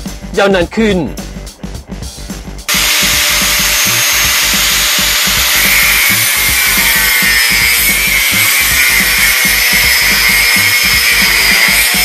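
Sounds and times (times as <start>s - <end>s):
background music with steady beat: 0.0s - 12.0s
angle grinder cutting steel: 2.7s - 12.0s.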